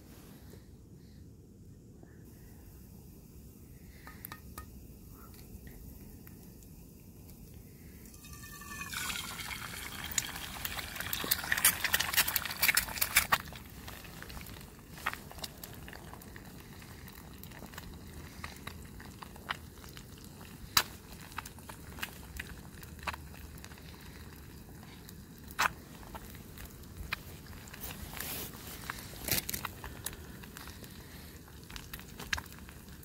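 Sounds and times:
liquid hissing in a hot pan: 0:08.0 - 0:33.0.

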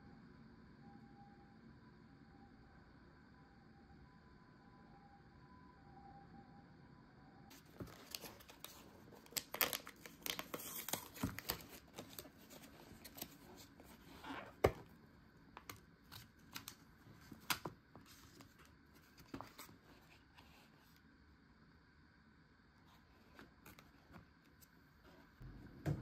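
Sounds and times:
plastic packaging crinkling: 0:07.5 - 0:14.9.

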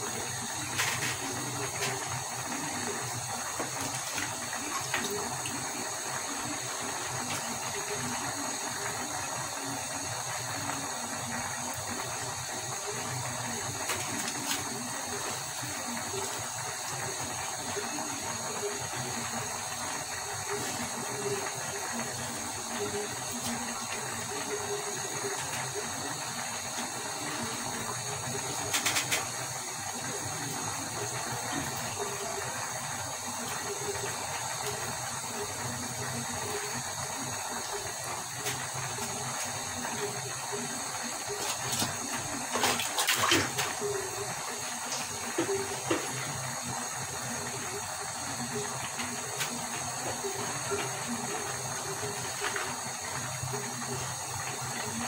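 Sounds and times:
curry sizzling in a pan: 0:00.0 - 0:55.0.

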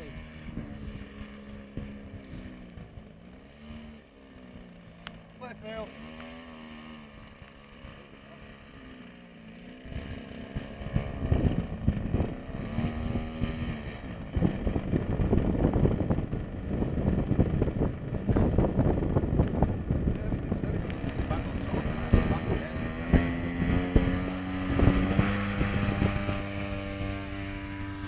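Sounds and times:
model airplane engine: 0:00.0 - 0:28.0
wind buffeting microphone: 0:09.8 - 0:28.0.

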